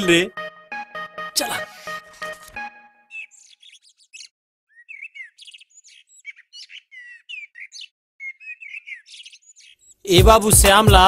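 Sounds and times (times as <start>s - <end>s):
small birds chirping: 3.0s - 10.2s.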